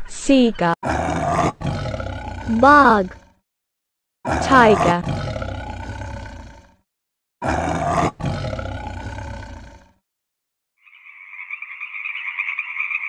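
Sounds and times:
tiger roaring: 0.8 - 3.4, 4.3 - 6.8, 7.4 - 10.0
frog croaking: 10.8 - 13.0.

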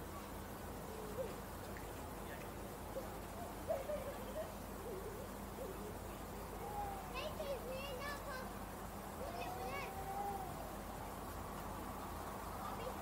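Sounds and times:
faint wavering hooting calls: 0.8 - 7.4, 9.2 - 10.8.

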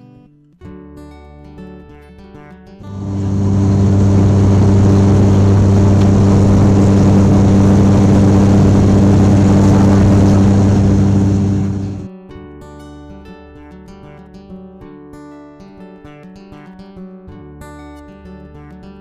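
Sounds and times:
airliner engines droning in cabin: 2.8 - 12.1.

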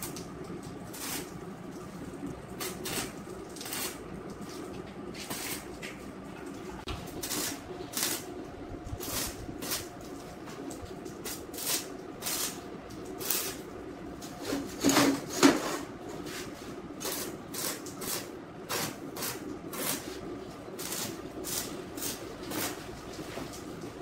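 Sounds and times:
welder hum: 0.0 - 6.0, 6.7 - 14.7, 16.3 - 23.1
welder crackling hiss: 0.9 - 1.3, 2.6 - 4.0, 5.2 - 5.7, 7.0 - 8.3, 9.0 - 10.0, 11.2 - 13.6, 17.0 - 20.2, 20.8 - 22.8.

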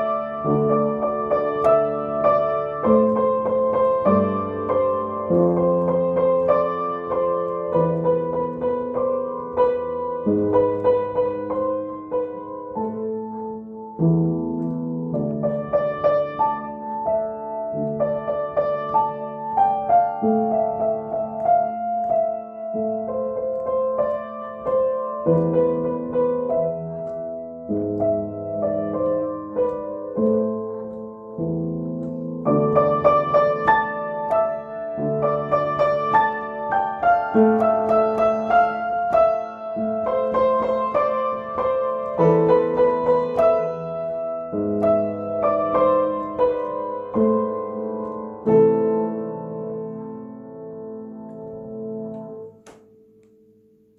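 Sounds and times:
upright piano melody over chords: 0.0 - 53.9.

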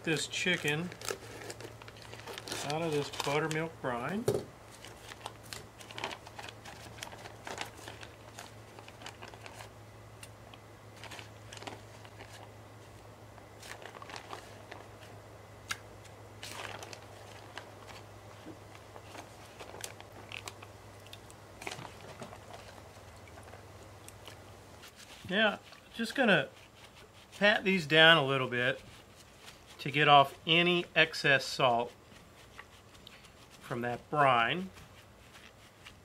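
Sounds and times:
faint low hum: 0.0 - 36.0
plastic bag crinkling: 0.2 - 9.8, 10.9 - 12.5, 13.6 - 15.1, 16.4 - 30.4.

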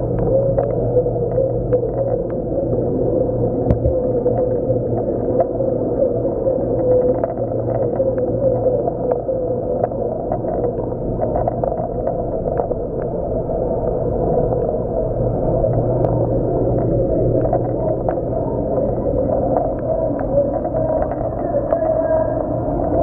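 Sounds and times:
low pump hum: 0.0 - 23.0
faint ticks: 6.8 - 13.2, 15.6 - 22.0.

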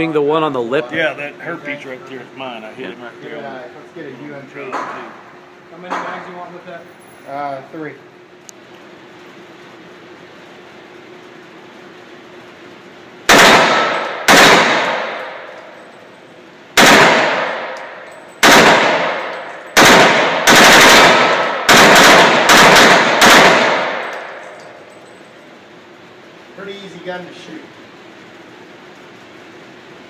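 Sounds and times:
handgun shots echoing: 13.3 - 15.8, 16.8 - 24.8.

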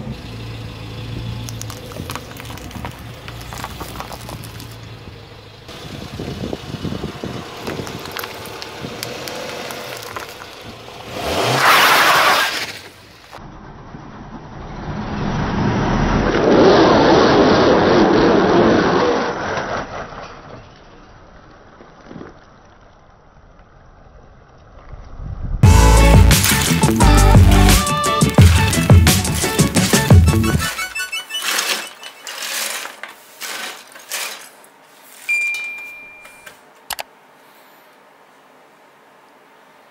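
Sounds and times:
car engine and tyres on wet asphalt: 0.0 - 39.9
plastic pieces swept with brush: 26.2 - 35.4
high steady tone: 35.3 - 36.6.

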